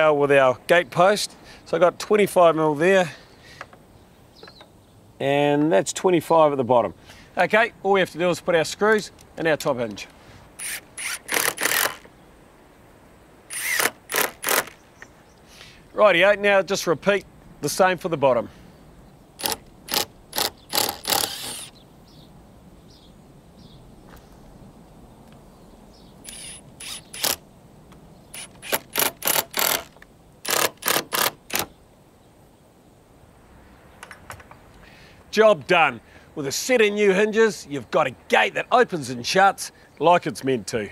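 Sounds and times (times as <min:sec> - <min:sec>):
power drill driving screws: 0:10.6 - 0:12.1, 0:13.5 - 0:14.8, 0:19.4 - 0:21.7, 0:26.3 - 0:27.4, 0:28.4 - 0:31.7.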